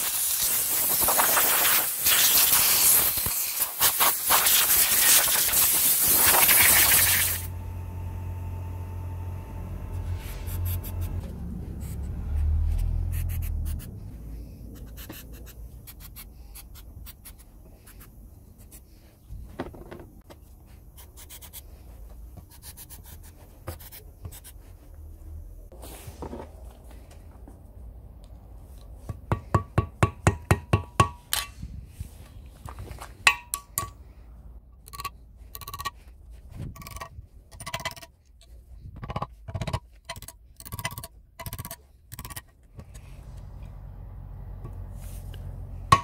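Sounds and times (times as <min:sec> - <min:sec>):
aerosol spray hissing: 0:00.0 - 0:07.5.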